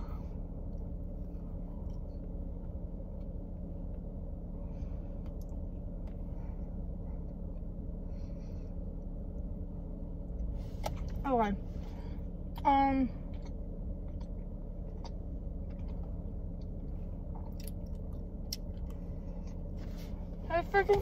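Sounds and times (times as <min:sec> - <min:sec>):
car engine running rumble: 0:00.0 - 0:21.0
soft rustles: 0:19.7 - 0:21.0.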